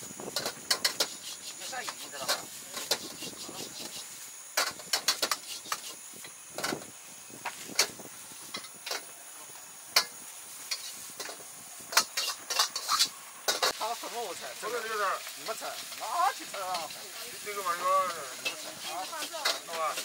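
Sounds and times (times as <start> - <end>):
gas flame and frying hiss: 0.0 - 20.0
metal ladle clanking against wok: 10.7 - 13.8, 18.3 - 20.0.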